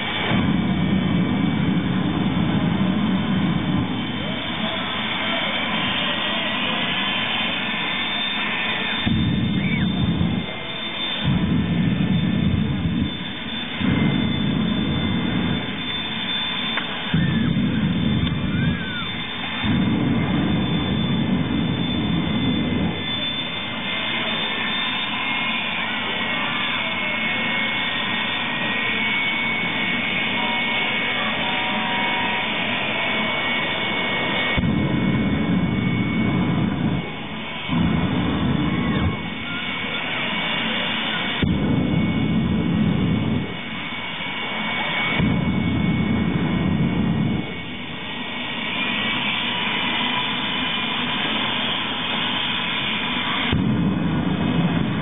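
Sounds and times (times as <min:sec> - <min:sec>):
deep rumble of flame blast: 0:00.0 - 0:55.0
jet engine roaring in surges: 0:00.0 - 0:55.0.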